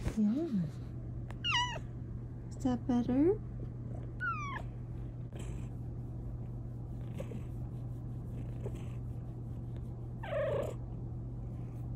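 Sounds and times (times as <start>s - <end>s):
cat purring: 5.3s - 11.8s.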